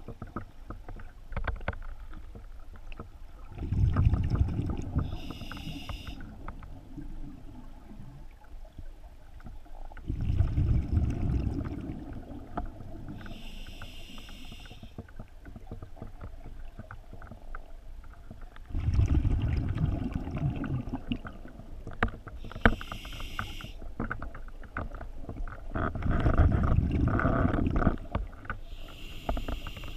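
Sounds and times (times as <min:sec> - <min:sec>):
exhaled bubbles rumbling: 0:03.3 - 0:13.4, 0:18.4 - 0:22.6, 0:24.1 - 0:29.9
hissing regulator inhalation: 0:05.0 - 0:06.3, 0:13.2 - 0:15.0, 0:22.4 - 0:23.8, 0:28.7 - 0:29.9.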